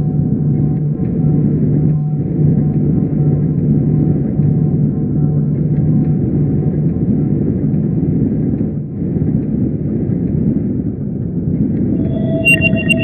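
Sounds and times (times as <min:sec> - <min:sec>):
low rumbling drone: 0:00.0 - 0:10.1, 0:11.3 - 0:13.0
higher steady tone: 0:11.8 - 0:13.0.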